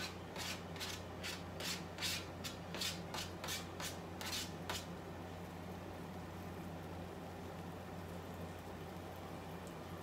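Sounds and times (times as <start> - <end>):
utensil scraping frying pan: 0.0 - 4.9.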